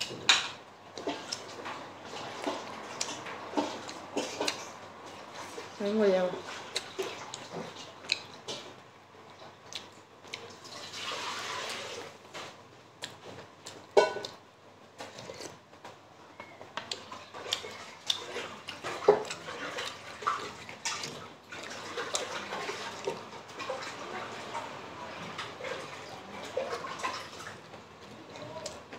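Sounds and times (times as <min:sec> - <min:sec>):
wet chewing and lip smacks: 0:06.7 - 0:08.6, 0:09.2 - 0:10.7, 0:13.0 - 0:14.4, 0:16.8 - 0:22.4.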